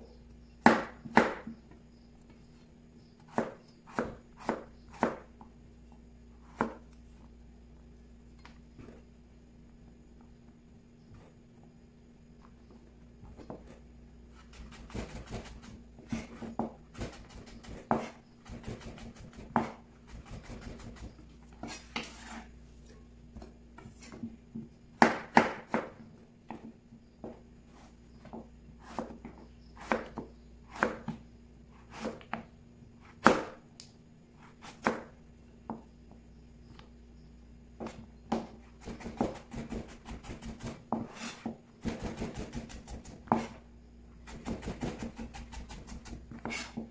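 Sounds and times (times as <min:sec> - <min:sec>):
knife chopping on cutting board: 0:00.6 - 0:01.6, 0:03.3 - 0:05.2, 0:06.5 - 0:06.8, 0:14.5 - 0:22.4, 0:28.8 - 0:29.2, 0:29.8 - 0:31.2, 0:31.9 - 0:32.4, 0:33.1 - 0:33.6, 0:37.8 - 0:43.6, 0:44.3 - 0:46.9.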